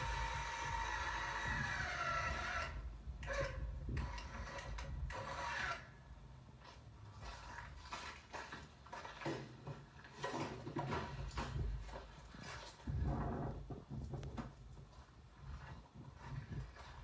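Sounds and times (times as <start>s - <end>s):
lift motor whining: 0.0s - 5.8s.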